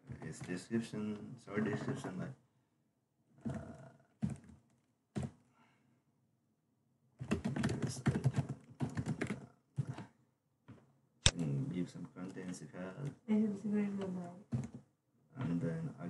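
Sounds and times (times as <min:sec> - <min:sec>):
typing on computer keyboard: 0:07.2 - 0:10.1.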